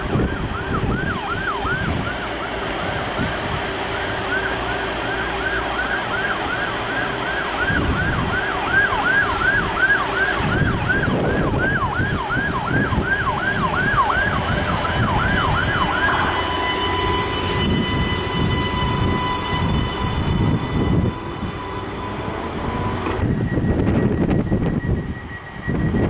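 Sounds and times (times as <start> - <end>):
low rumble of idling trains: 0.0 - 26.0
electronic warning alarm chirp: 13.4 - 26.0.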